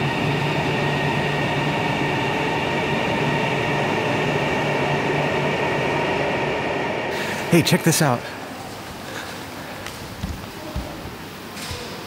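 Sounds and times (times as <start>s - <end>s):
electric train running: 0.0s - 8.5s.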